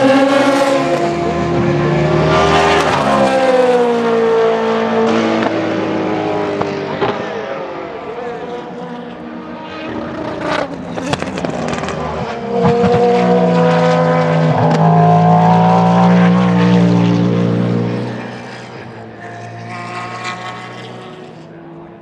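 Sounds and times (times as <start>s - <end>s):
race car engine passing: 8.3s - 22.0s.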